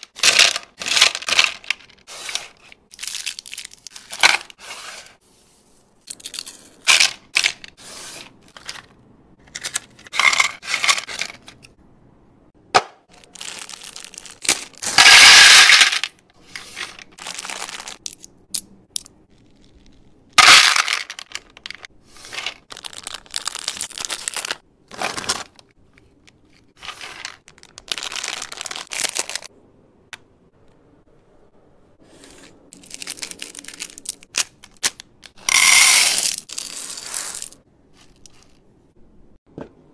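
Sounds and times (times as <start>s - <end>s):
plastic wrappers crinkling and tearing: 0.0s - 4.6s, 13.1s - 15.0s, 16.5s - 18.3s, 20.8s - 25.7s, 26.8s - 29.5s, 32.7s - 35.3s
candies clattering into plastic tray: 0.0s - 5.1s, 6.2s - 11.6s, 13.2s - 18.3s, 20.4s - 25.6s, 26.8s - 29.5s.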